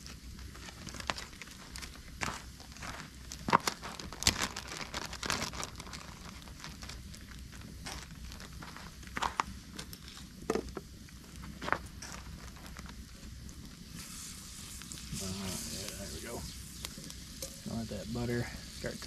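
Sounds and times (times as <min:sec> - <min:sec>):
campfire crackling: 0:00.0 - 0:19.0
sharp pops from burning logs: 0:00.0 - 0:19.0.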